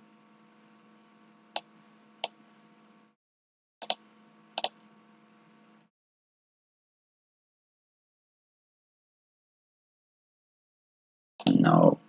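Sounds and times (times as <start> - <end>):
faint steady hum: 0.0 - 3.2, 3.8 - 5.9, 11.4 - 12.0.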